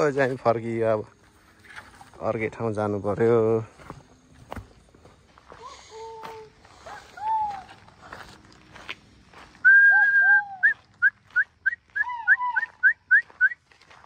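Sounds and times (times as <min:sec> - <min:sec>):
high whistled calls: 0:09.6 - 0:13.7.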